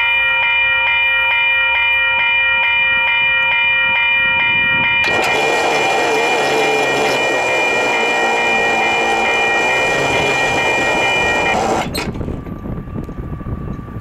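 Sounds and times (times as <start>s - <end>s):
train horn blast: 5.0s - 11.8s.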